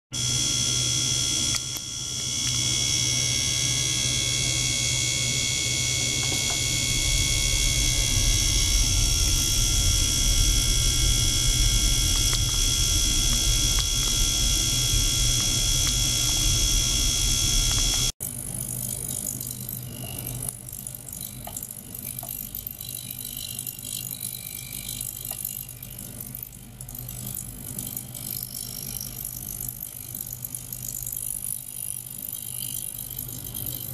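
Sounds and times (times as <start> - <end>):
high steady whining tones: 0.1 - 18.4
ultrasonic cleaner humming: 0.2 - 18.1.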